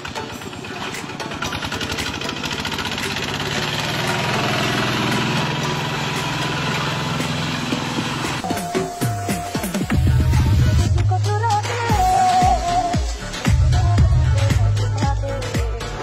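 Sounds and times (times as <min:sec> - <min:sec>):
walking tractor engine chugging: 0:00.0 - 0:08.4.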